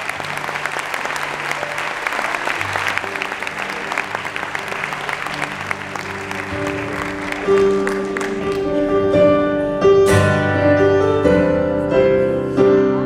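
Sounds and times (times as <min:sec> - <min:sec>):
audience applauding: 0:00.0 - 0:09.2
band holding instrumental notes: 0:00.0 - 0:12.8.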